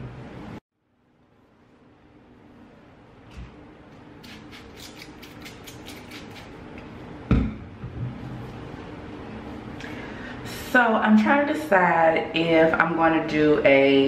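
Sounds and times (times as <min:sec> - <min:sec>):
spray bottle squirts: 0:04.2 - 0:06.5.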